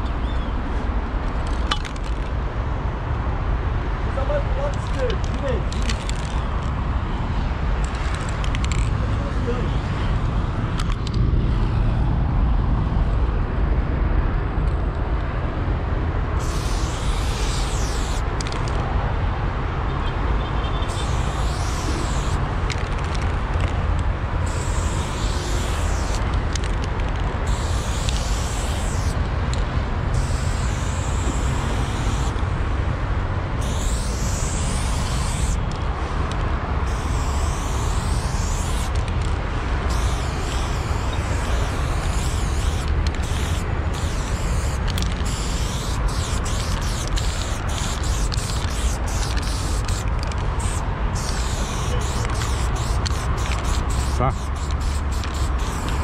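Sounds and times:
spray paint can hissing: 4.6s - 6.7s, 7.8s - 8.9s, 16.4s - 19.0s, 20.8s - 32.5s, 33.6s - 56.0s.

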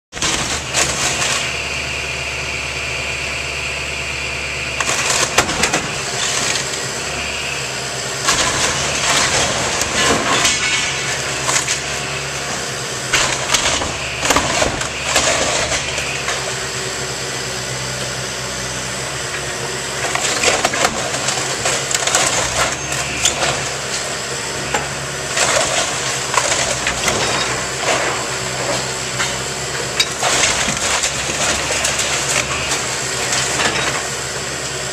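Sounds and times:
excavator engine running: 0.1s - 34.9s
roof wood cracking and splintering: 0.2s - 1.6s, 4.8s - 6.8s, 8.2s - 12.3s, 13.1s - 16.5s, 20.0s - 24.0s, 25.3s - 34.1s.

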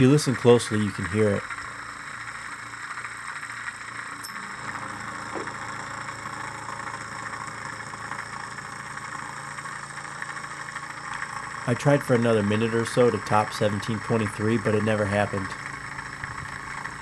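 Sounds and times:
hot-air engine running fast: 0.0s - 17.0s
torch flame hissing: 0.0s - 17.0s.

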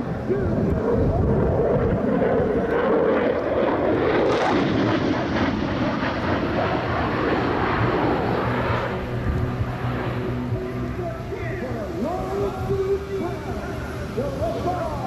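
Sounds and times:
fighter jet roar: 0.0s - 15.0s.

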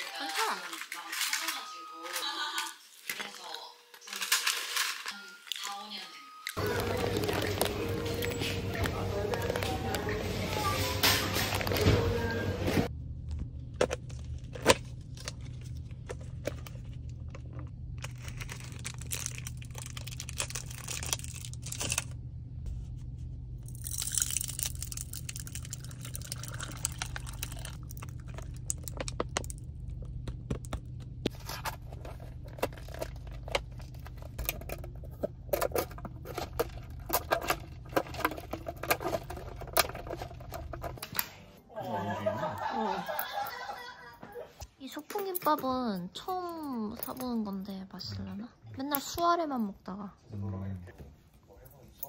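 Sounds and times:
plastic packaging crinkling: 0.0s - 6.0s, 6.6s - 12.1s, 13.9s - 22.2s, 23.6s - 30.7s, 31.3s - 41.0s
steady low hum: 6.6s - 44.5s.

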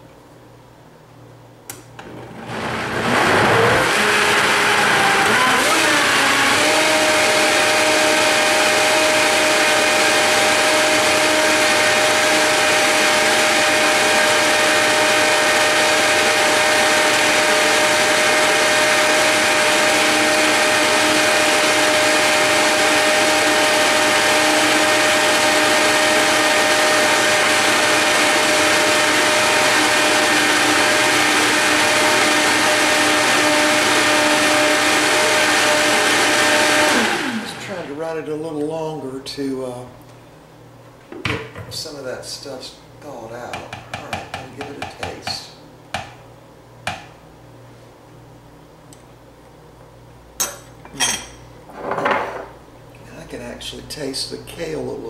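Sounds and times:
blender motor whine: 2.0s - 38.1s.

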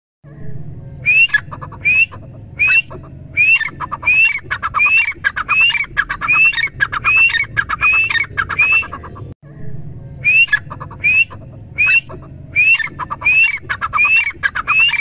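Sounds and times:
francolin calling: 1.0s - 9.2s, 10.2s - 15.0s.

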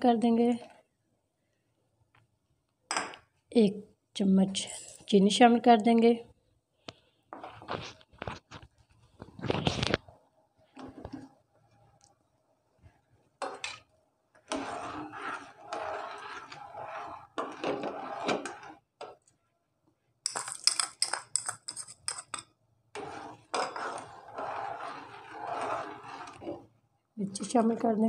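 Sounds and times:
boiling water: 14.4s - 18.9s, 23.0s - 26.8s
metal spoon scraping steel pan: 14.5s - 18.8s, 20.3s - 22.4s, 23.0s - 26.7s.

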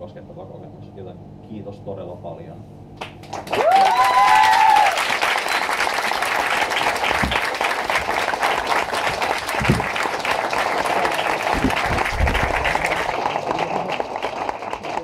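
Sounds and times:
audience applauding: 3.0s - 15.0s
dull low thumps: 11.5s - 13.1s.

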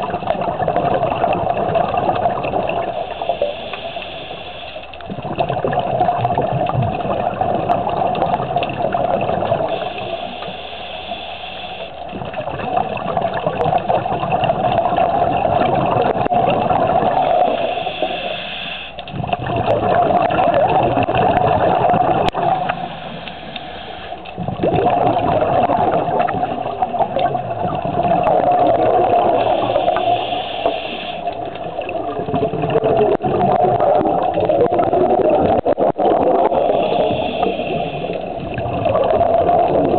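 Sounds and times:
exhaled bubbles rushing: 0.0s - 3.6s, 5.0s - 10.4s, 12.0s - 18.4s, 19.0s - 39.9s
regulator hissing inhale: 2.9s - 5.0s, 9.7s - 12.1s, 17.4s - 19.1s, 22.6s - 24.4s, 29.4s - 31.4s, 36.5s - 38.5s.

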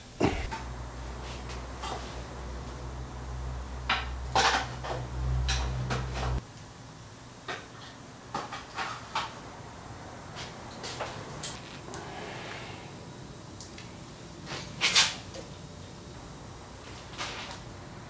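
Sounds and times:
low steady hum: 0.0s - 7.4s.

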